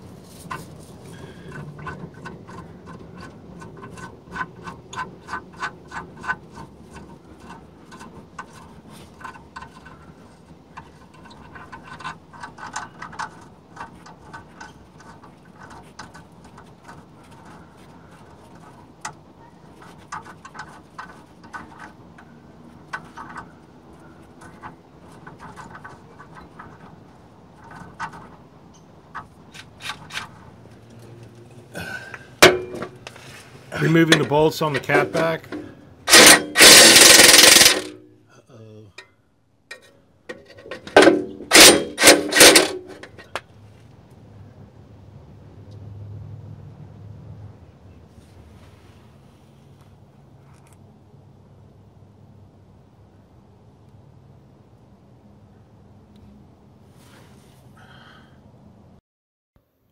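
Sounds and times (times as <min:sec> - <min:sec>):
ratchet wrench clicking: 0:36.1 - 0:37.9.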